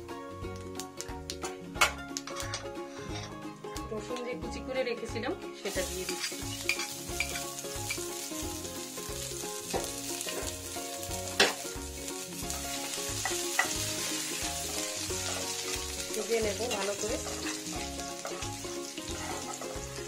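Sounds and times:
garlic sizzling in oil: 5.6s - 20.0s
spatula stirring in pan: 12.8s - 20.0s.

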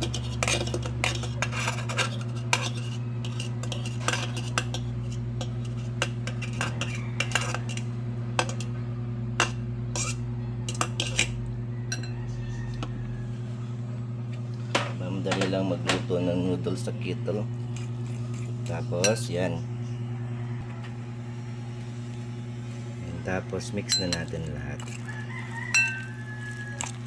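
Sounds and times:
fork scraping ceramic bowl: 0.0s - 8.8s, 9.4s - 11.4s, 17.7s - 19.2s, 24.0s - 27.0s
steady low hum: 0.0s - 27.0s.

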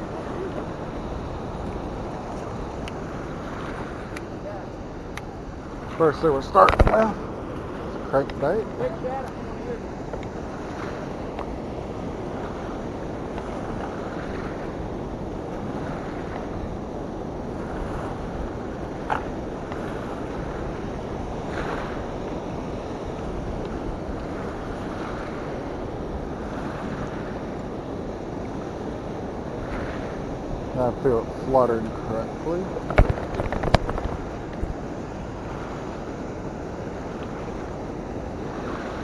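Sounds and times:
turbulent water rushing: 0.0s - 39.0s
wind on microphone: 0.0s - 39.0s
sharp click: 6.6s - 7.0s.

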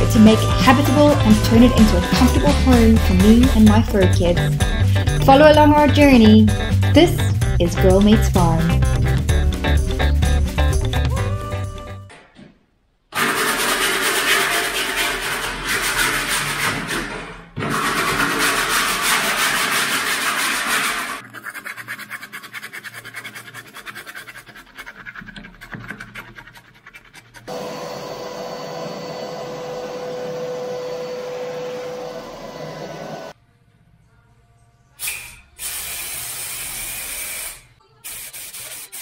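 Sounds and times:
sanding block scrubbing wood: 0.0s - 3.7s, 13.2s - 27.6s, 38.1s - 39.0s.

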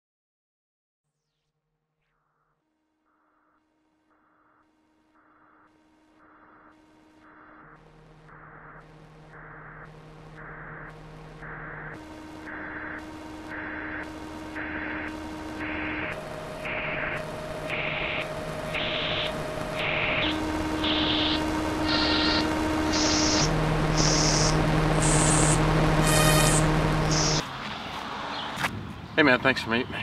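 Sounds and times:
low drone tones: 6.2s - 27.4s
pulses of hissing noise: 7.4s - 27.4s.

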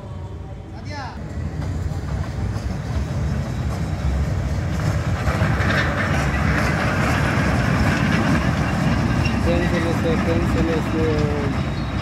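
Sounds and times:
train wheels clacking on rails: 1.2s - 12.0s.

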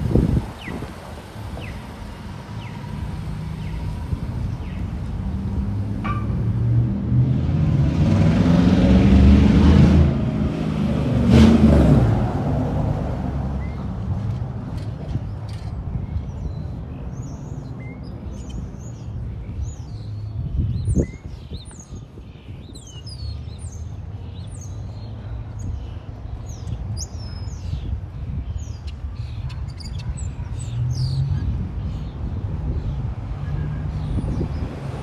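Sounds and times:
songbirds chirping: 0.0s - 7.6s, 13.4s - 35.0s
vehicle engine: 0.0s - 15.8s
low street rumble: 0.0s - 35.0s.

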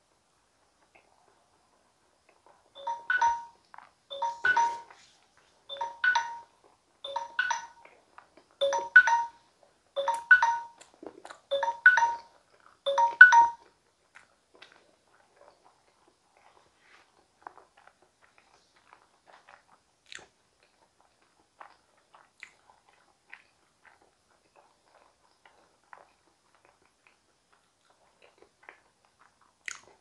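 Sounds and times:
phone alarm chime: 2.8s - 5.0s, 5.7s - 6.5s, 7.1s - 7.8s, 8.6s - 9.4s, 10.0s - 10.8s, 11.5s - 12.3s, 12.9s - 13.6s.

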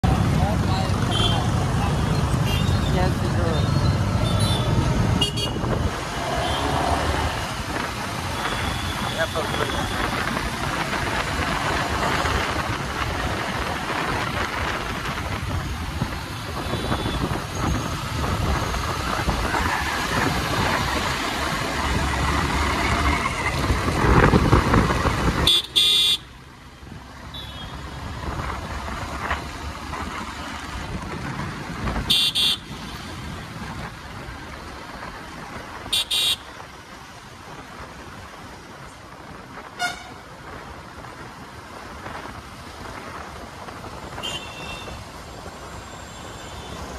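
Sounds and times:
wind noise: 2.2s - 25.7s, 28.0s - 36.0s.

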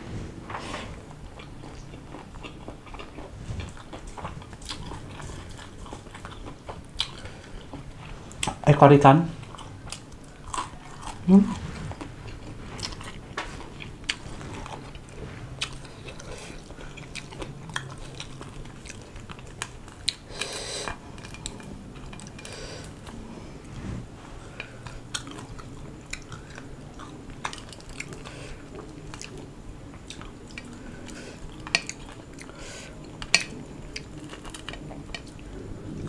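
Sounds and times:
chewing and crunching fried fish: 1.1s - 8.6s, 9.4s - 23.2s, 24.6s - 36.0s
breath hiss: 20.3s - 21.0s.

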